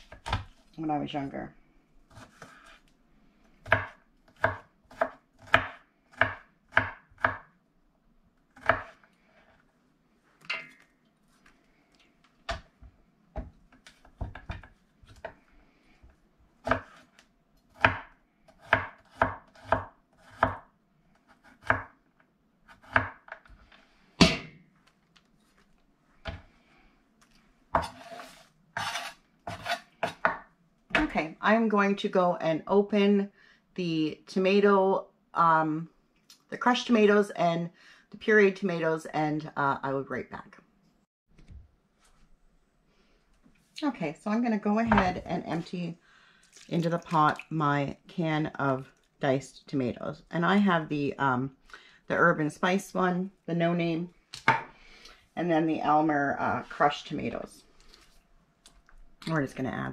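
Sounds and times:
knife chopping on wooden board: 3.6 - 7.4, 27.8 - 31.1.

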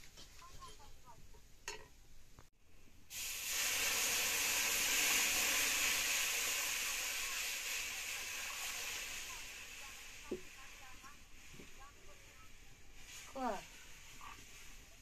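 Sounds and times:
hot oil hissing and steaming: 3.0 - 15.0
water pouring: 3.1 - 10.5.

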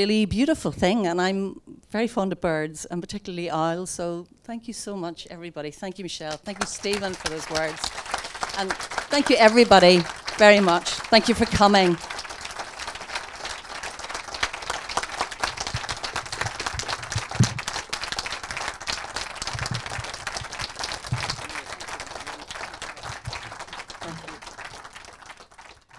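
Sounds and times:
audience applauding: 6.3 - 25.9.

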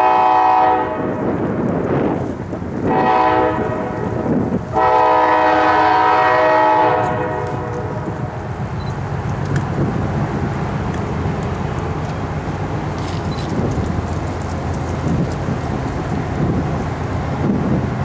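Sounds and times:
train horn blasts: 0.0 - 1.4, 2.8 - 8.2
train rumble: 0.0 - 18.0.

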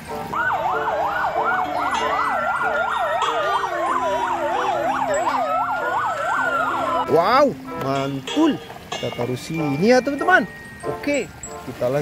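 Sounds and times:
siren wail: 0.3 - 7.2
siren yelp: 0.3 - 7.2.

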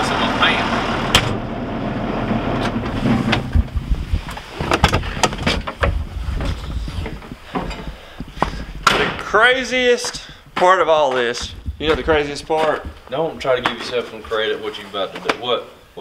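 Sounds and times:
low steady rumble: 0.0 - 13.6
knocks and clicks: 2.6 - 9.2
cab door and steps banging: 2.6 - 9.4.

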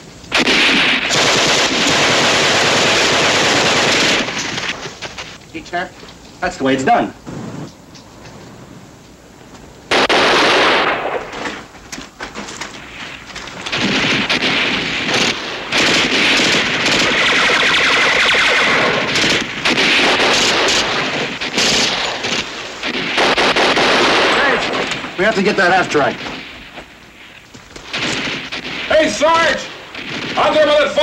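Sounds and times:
heavy gunfire: 0.3 - 5.3, 9.9 - 11.7, 12.9 - 31.0.

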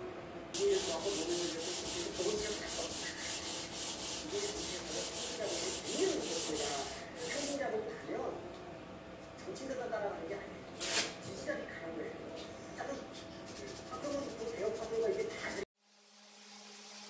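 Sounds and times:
sandpaper rubbing on wood: 0.6 - 7.6.

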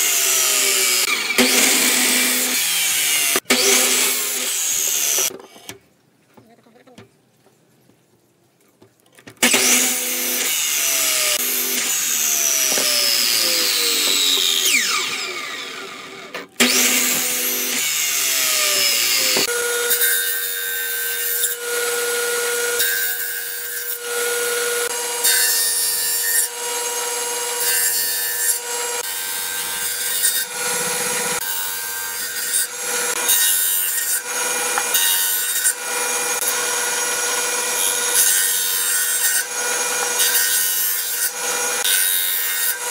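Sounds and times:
table saw ripping board: 0.0 - 5.5, 9.4 - 20.5, 27.7 - 42.9
mitre saw cutting wood: 0.0 - 5.8, 9.4 - 42.9.

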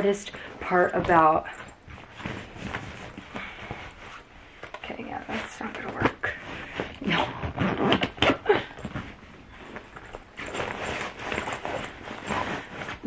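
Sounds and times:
clothes and bag fabric rustling: 0.0 - 13.0.

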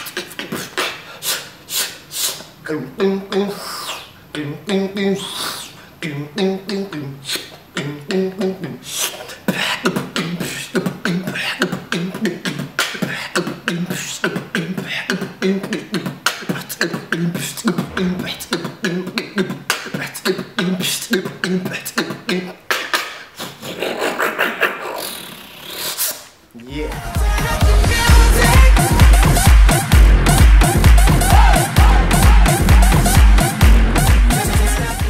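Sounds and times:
person beatboxing: 0.0 - 35.0
breathy sustained mouth sound: 3.5 - 4.2, 5.2 - 6.0.

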